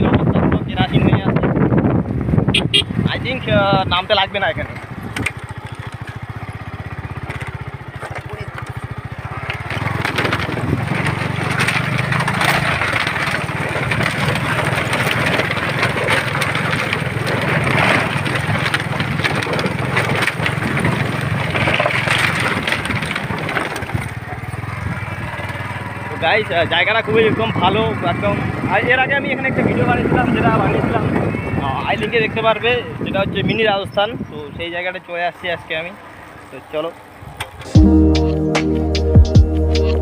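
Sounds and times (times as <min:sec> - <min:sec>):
motorcycle engine running: 0:00.0 - 0:40.0
steady rushing noise with clicks: 0:03.2 - 0:30.6.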